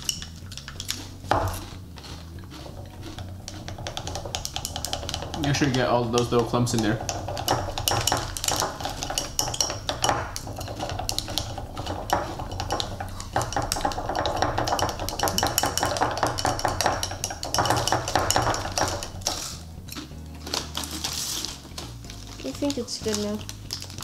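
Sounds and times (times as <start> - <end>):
chopstick stirring in a cup: 0.0 - 23.9.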